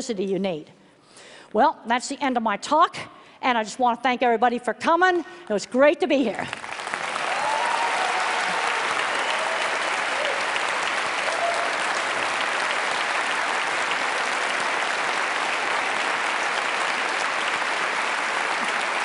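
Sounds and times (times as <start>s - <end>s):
audience applauding: 6.5s - 19.0s.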